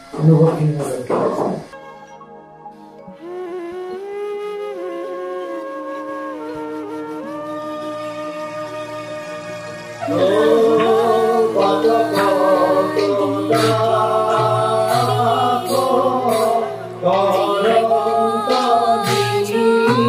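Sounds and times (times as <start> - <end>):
slow sung melody: 1.3 - 20.0.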